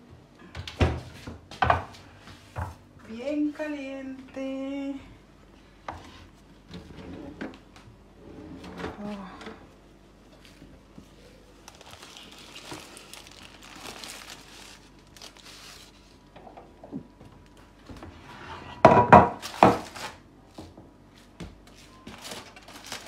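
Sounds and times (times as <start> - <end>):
foil crinkling and rustling: 11.1 - 16.4, 19.4 - 20.3, 22.0 - 23.0.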